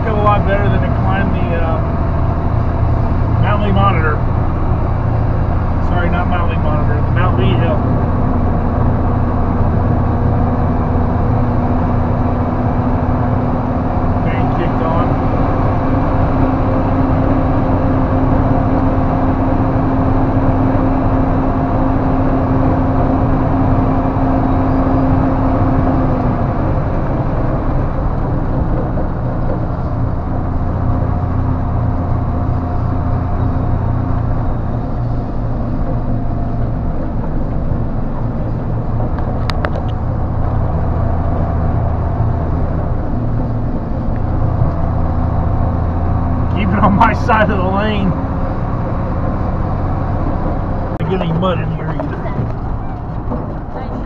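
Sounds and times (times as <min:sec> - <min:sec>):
truck diesel engine drone: 0:00.0 - 0:54.0.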